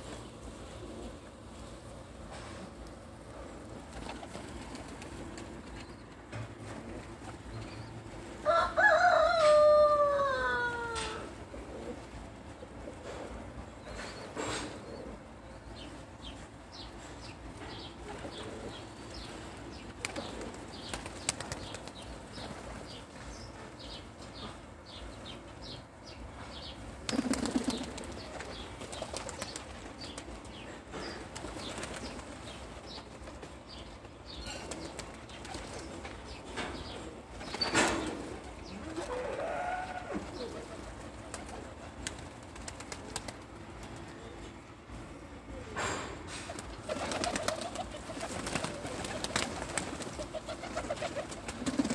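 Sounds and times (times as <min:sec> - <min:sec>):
pigeon wings rustling: 0:00.0 - 0:07.6, 0:17.9 - 0:23.2, 0:27.0 - 0:36.4, 0:37.0 - 0:44.3, 0:46.3 - 0:51.9
wing flapping flurry: 0:03.6 - 0:06.0, 0:19.5 - 0:23.1, 0:27.0 - 0:30.6, 0:31.2 - 0:33.6, 0:37.4 - 0:44.2, 0:46.4 - 0:51.9.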